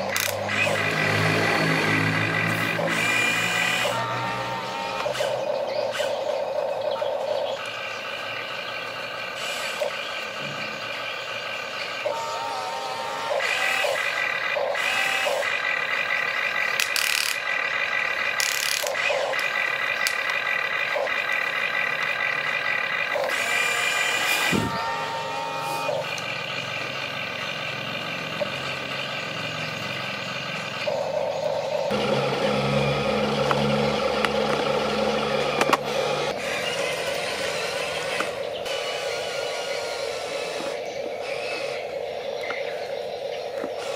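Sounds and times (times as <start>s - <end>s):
electric motor whine: 0.0s - 6.2s, 12.0s - 15.7s, 23.1s - 26.3s, 31.8s - 42.1s.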